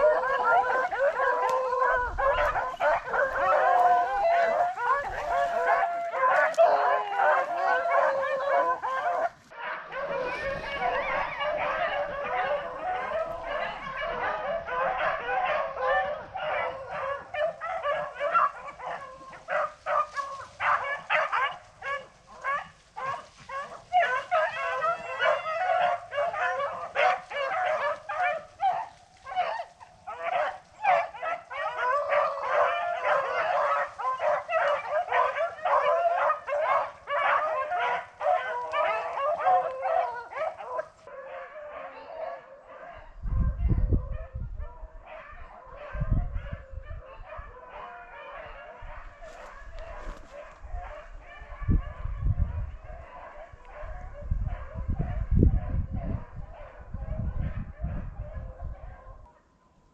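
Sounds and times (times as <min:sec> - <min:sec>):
dogs baying and yelping: 0:00.0 - 0:59.2.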